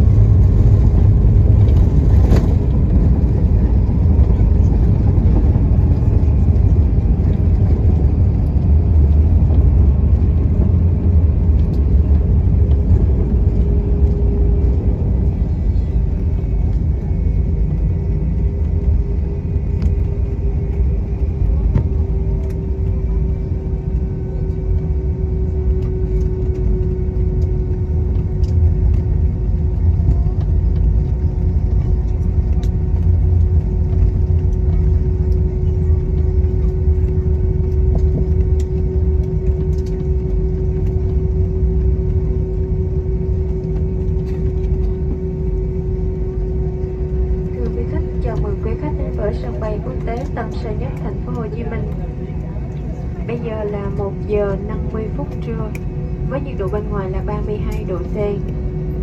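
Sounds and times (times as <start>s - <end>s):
aircraft cabin low rumble: 0.0s - 59.0s
jet engines winding down: 0.0s - 59.0s.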